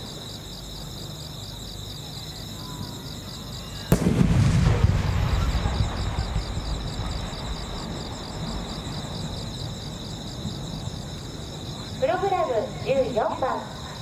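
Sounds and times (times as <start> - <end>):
insects chirping: 0.0 - 14.0
firework shell burst echo: 3.9 - 7.4.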